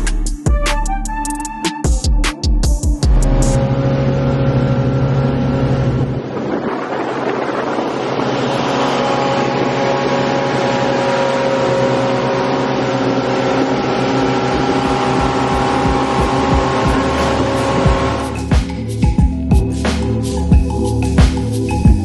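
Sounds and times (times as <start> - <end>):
motorboat engine running: 3.0 - 22.0
wind: 3.5 - 18.5
water rushing from wake: 4.4 - 18.6.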